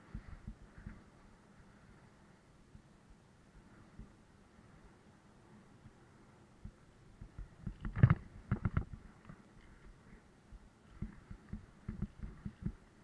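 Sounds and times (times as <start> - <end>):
bicycle rattling over bumps: 7.4 - 9.8.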